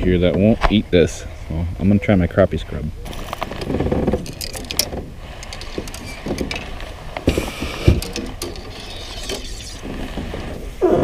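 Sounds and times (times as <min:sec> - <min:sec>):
fishing gear clicks and knocks: 0:03.1 - 0:10.6.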